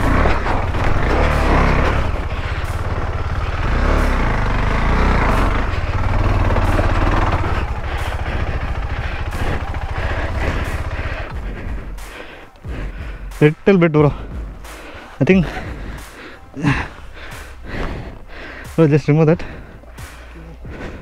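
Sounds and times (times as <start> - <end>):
single-cylinder engine running: 0.0 - 12.1.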